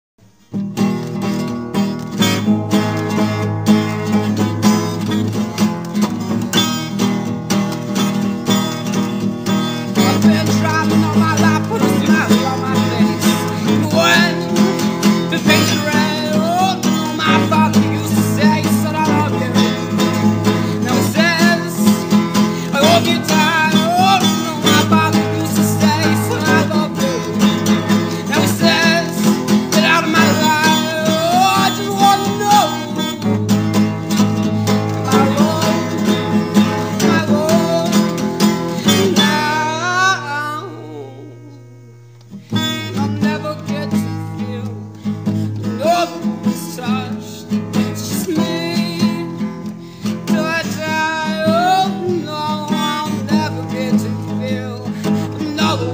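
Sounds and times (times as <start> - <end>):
acoustic guitar music: 0.2 - 55.9.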